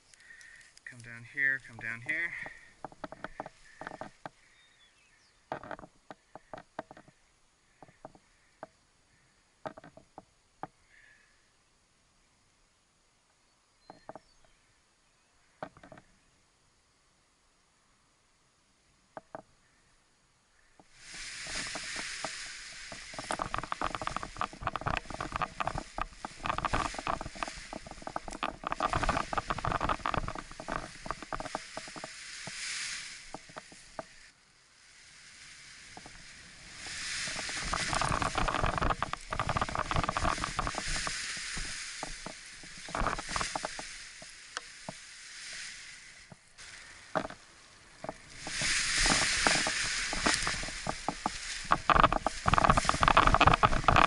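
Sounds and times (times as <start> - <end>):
crackling rustle of paraglider wing: 0.0 - 8.6, 20.6 - 54.0.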